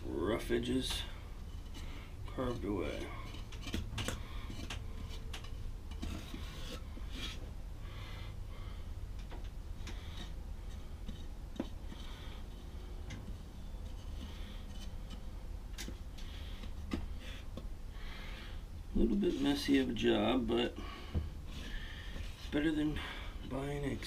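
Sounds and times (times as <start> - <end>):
razor scraping plaster: 1.6 - 7.4.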